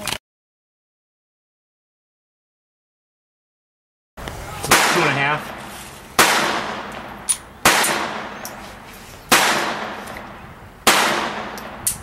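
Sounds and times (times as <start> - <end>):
pistol shots echoing: 4.7 - 8.6, 9.3 - 12.0
sharp click: 11.6 - 12.0.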